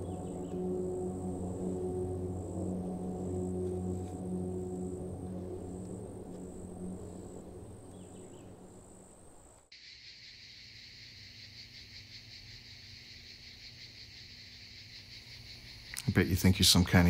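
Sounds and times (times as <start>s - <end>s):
low drone in car cabin: 0.0s - 9.3s
faint low hum: 0.0s - 9.7s
insects chirring: 0.0s - 17.0s.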